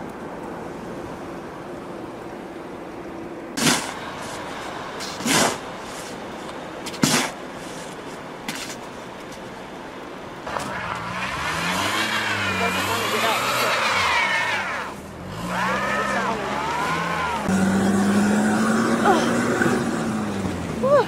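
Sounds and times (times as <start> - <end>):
steady wind: 0.0 - 21.0
shovel scraping packed snow: 3.6 - 6.2, 6.9 - 8.8
tyres spinning in snow: 3.6 - 21.0
car engine revving: 10.4 - 21.0.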